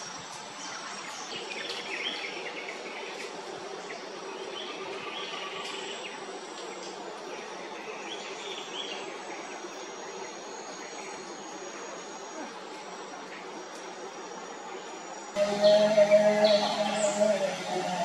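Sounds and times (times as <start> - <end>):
insect chorus with high whining: 0.0 - 18.0
bird calls: 15.4 - 18.0.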